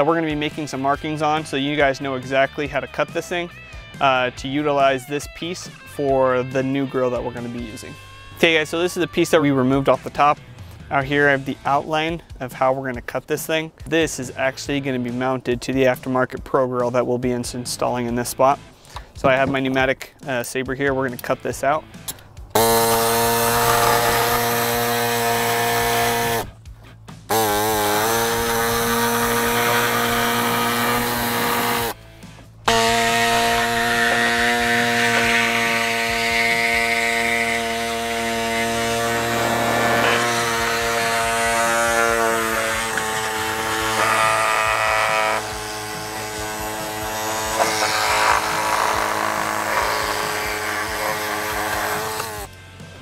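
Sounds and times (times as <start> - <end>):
pneumatic saw cutting plastic: 22.5 - 32.0, 32.6 - 52.6.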